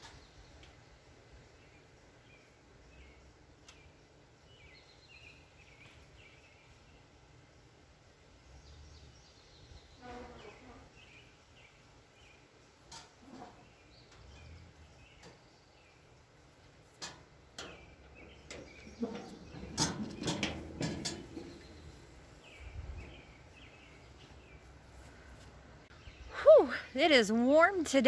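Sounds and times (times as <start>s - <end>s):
wheelbarrow rattling and clanking: 17.0s - 23.2s.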